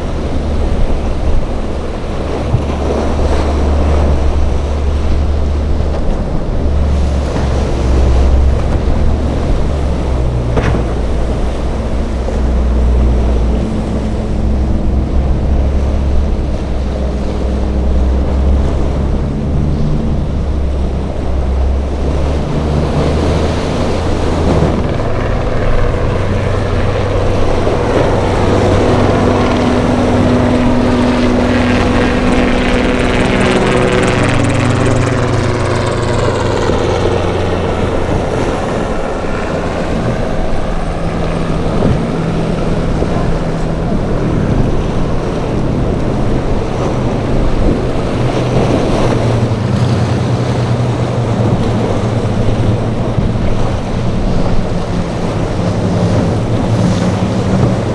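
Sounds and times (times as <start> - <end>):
powerboat engines droning: 0.0 - 57.9
waves splashing: 0.0 - 57.9.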